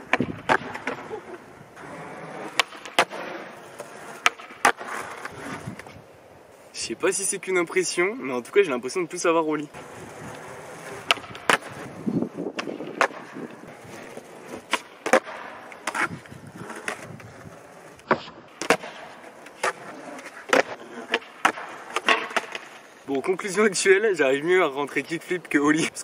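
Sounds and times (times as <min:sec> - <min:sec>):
skateboard tail clacks: 0:00.0 - 0:06.0, 0:09.7 - 0:22.9
skateboard rolling on asphalt: 0:00.0 - 0:26.0.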